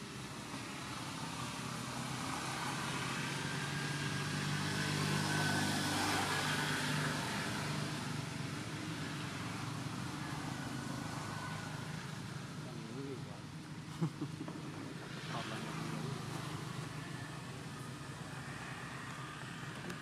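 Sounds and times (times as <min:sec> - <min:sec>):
vehicle passing by: 0:00.7 - 0:13.2.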